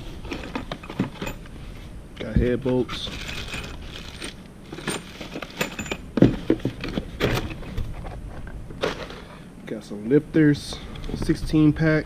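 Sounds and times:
metal parts clinking and rattling: 0.2 - 1.5, 2.5 - 9.4
packaging rustling: 2.8 - 5.6.

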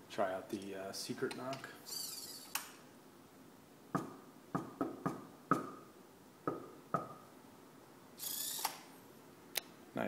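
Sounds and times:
knuckles knocking on a door: 4.0 - 5.8.

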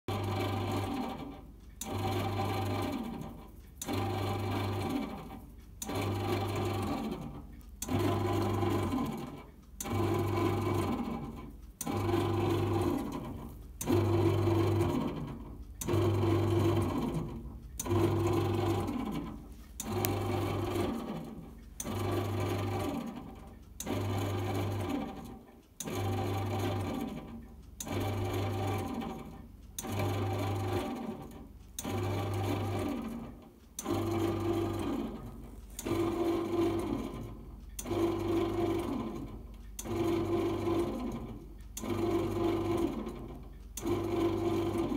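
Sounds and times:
bread machine kneading motor: 0.1 - 44.9.

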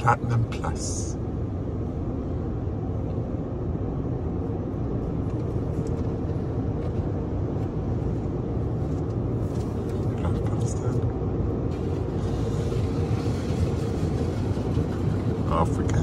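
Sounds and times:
car wash rumble: 0.0 - 16.0
water spray on windshield: 11.7 - 15.4.

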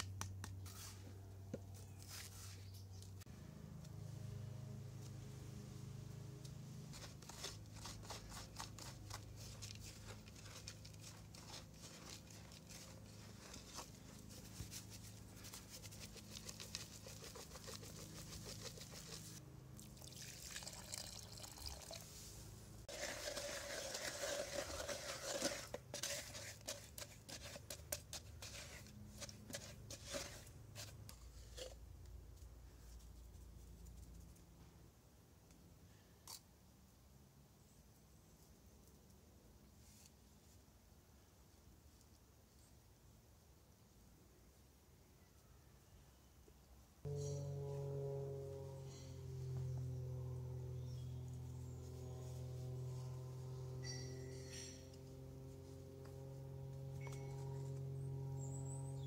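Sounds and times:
hands mixing gritty mortar: 6.8 - 19.4, 22.1 - 31.8
water pouring and splashing: 19.8 - 24.6.

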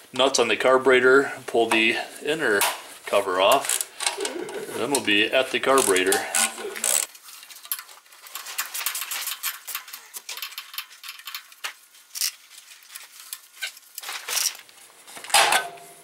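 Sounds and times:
sheet metal cover clattering: 15.2 - 16.0.

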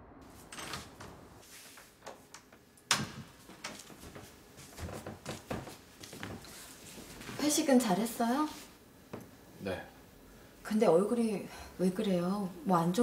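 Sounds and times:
door clicks and knocks: 2.9 - 3.8.

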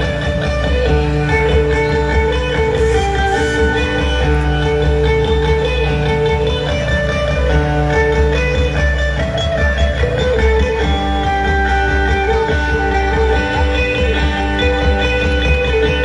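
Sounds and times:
plucked lute melody: 0.0 - 16.0
low bass pulse: 0.4 - 8.2.

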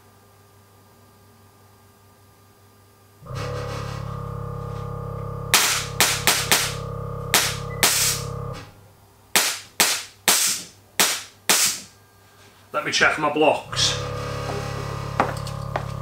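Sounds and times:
steady mechanical hum: 0.0 - 16.0
air suspension hissing bursts: 3.2 - 8.7, 9.4 - 11.9, 13.7 - 15.3.

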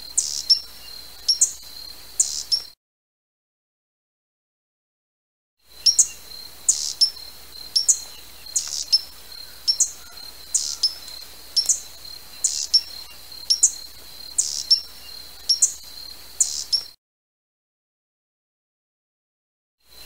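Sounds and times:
hummingbird chipping: 0.0 - 1.6, 5.8 - 15.8.

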